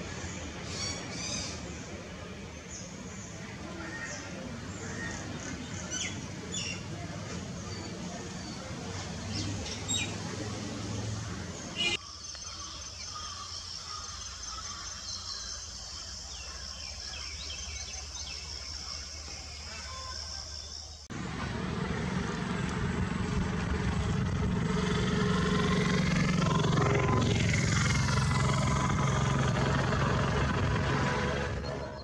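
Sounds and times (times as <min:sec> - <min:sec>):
engine hum: 0:00.0 - 0:12.0, 0:21.0 - 0:32.0
vehicle passing close by: 0:08.6 - 0:12.0, 0:21.1 - 0:32.0.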